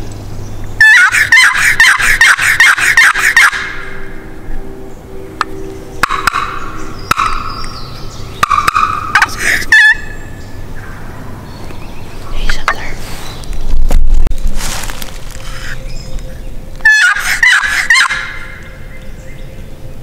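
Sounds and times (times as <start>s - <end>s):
turkey box call yelps: 0.8s - 3.9s, 8.4s - 10.2s, 16.8s - 18.7s
turkey gobbling: 0.8s - 3.9s, 6.0s - 7.6s, 8.4s - 10.2s, 16.8s - 18.7s.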